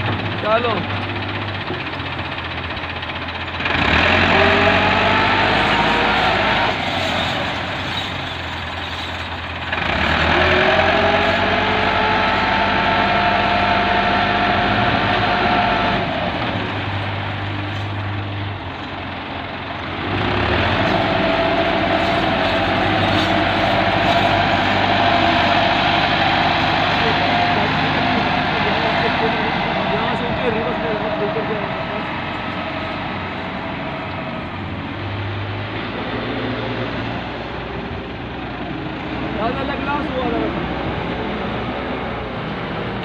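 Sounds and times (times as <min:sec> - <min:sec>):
tractor diesel engine working hard: 0:00.0 - 0:43.0.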